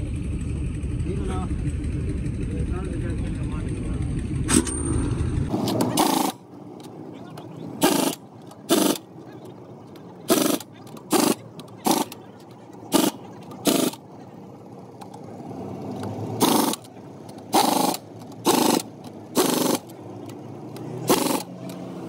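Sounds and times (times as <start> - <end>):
impact wrench rattling bursts: 5.5 - 6.9, 7.8 - 9.1, 10.3 - 14.1, 15.9 - 21.9.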